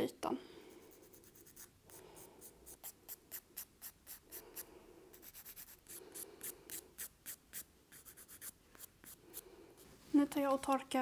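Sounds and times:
nail file rasping on fingernail: 0.8s - 9.4s.

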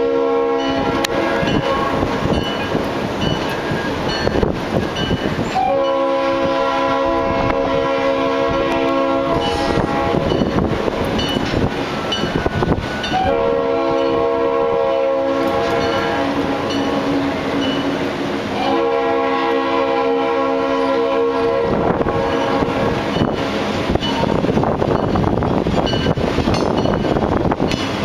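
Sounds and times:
locomotive air horn blasts: 0.0s - 2.1s, 5.5s - 10.7s, 13.0s - 23.3s
rumble of moving train: 0.0s - 28.0s.

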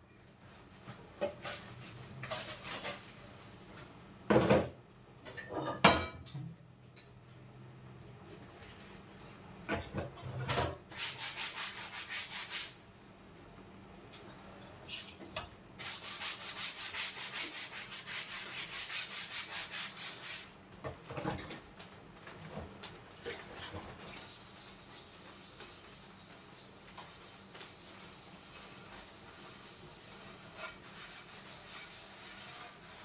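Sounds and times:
sponge scrubbing dishes: 1.3s - 3.1s, 10.3s - 12.8s, 15.8s - 20.5s, 24.2s - 33.0s.

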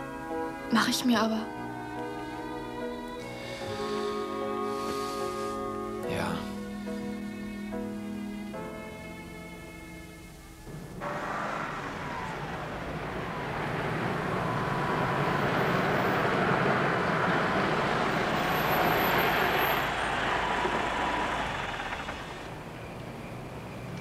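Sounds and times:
car engine and tyre noise: 10.3s - 24.0s.

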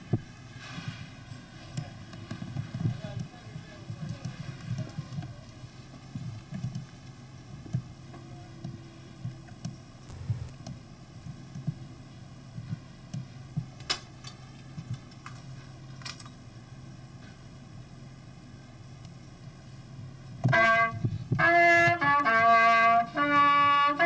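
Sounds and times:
low hum: 3.8s - 20.4s.

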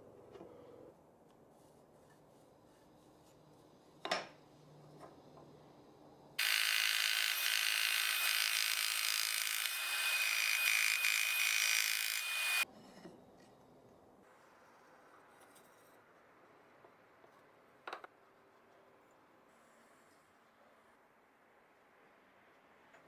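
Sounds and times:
scroll saw cutting wood: 6.4s - 12.6s.

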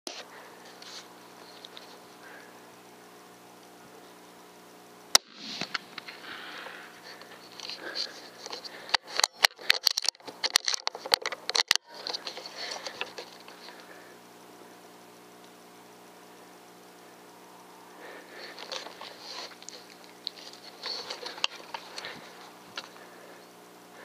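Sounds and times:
rifle shot crack: 5.1s - 6.0s
rustling handling noise: 5.6s - 13.9s, 18.4s - 23.2s.

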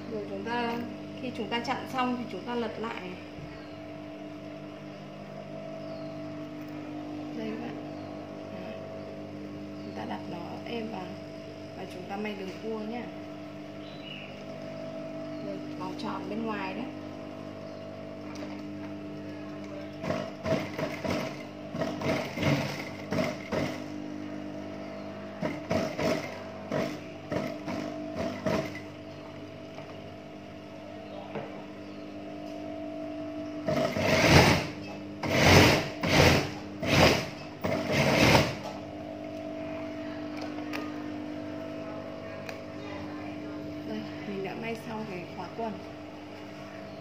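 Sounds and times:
steady hum: 0.0s - 47.0s
sewing machine stitching: 20.0s - 23.8s, 25.4s - 28.8s, 33.6s - 38.7s.

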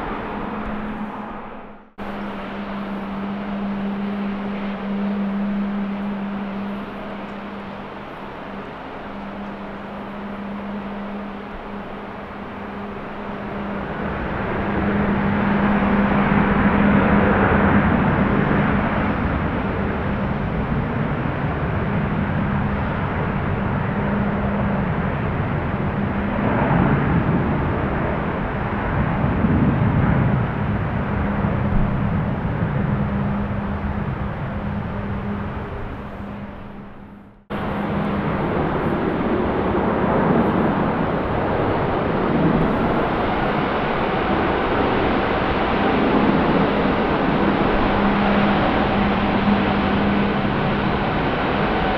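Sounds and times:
jet engine rumble: 0.0s - 51.9s.

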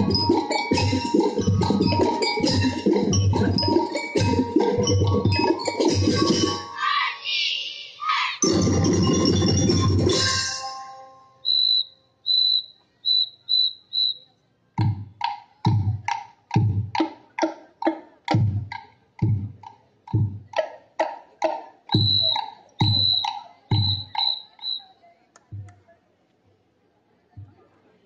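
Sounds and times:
marching drums cadence: 8.4s - 10.7s, 21.9s - 24.8s
short high whistle blasts: 11.4s - 14.3s, 22.0s - 24.9s.

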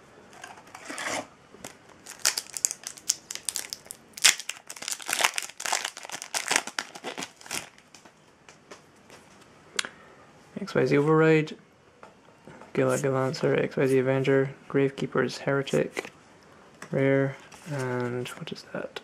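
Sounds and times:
foil wrapper crinkling and tearing: 1.6s - 8.0s.

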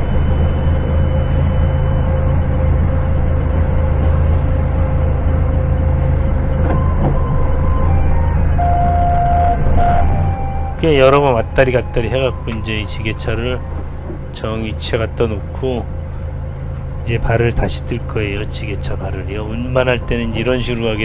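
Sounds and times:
forklift engine running: 0.0s - 21.0s
short steady tones: 6.7s - 15.1s.

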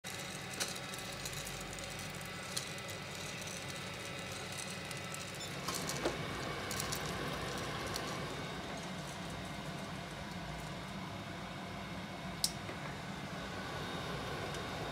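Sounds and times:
motor and fan humming: 0.0s - 14.9s.

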